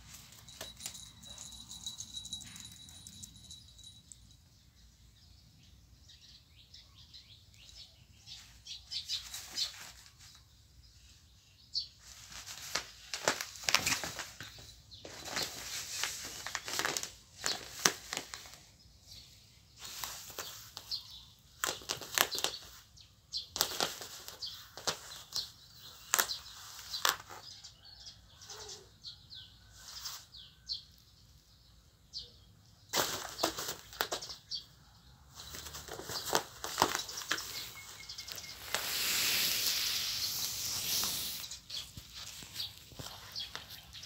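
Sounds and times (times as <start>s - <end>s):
cat claws scratching fabric: 19.8s - 22.7s, 23.5s - 27.4s, 35.3s - 44.0s.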